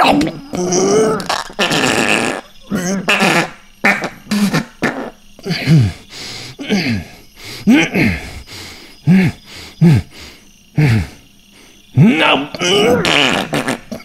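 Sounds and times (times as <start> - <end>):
person making groaning grunts: 0.0 - 1.3, 7.7 - 8.3, 12.0 - 13.2.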